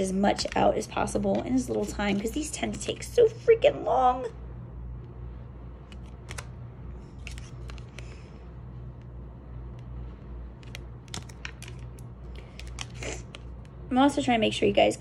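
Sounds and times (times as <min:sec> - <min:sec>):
low hum: 0:00.0 - 0:15.0
cards clicking: 0:05.8 - 0:06.6, 0:07.2 - 0:08.3, 0:10.5 - 0:13.8
card swishing: 0:05.9 - 0:08.2.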